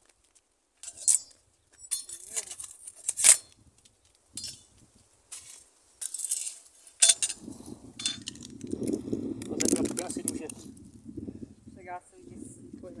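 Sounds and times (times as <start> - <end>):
rustling and clinking: 0.8 - 3.5, 4.4 - 10.6.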